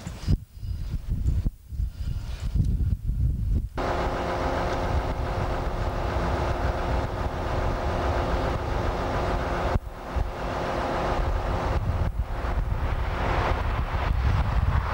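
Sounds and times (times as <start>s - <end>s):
diesel engine idling: 3.8s - 13.7s
train wheels rumbling: 3.8s - 14.9s.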